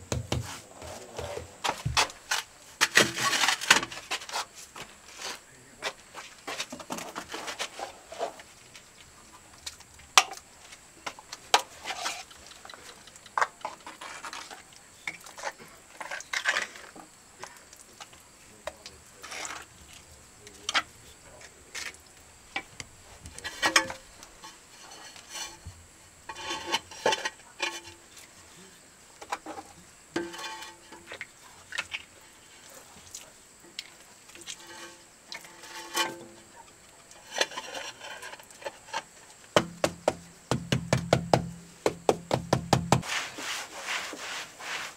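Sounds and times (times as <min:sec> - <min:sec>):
hand tools tapping on tile: 0:39.6 - 0:43.0.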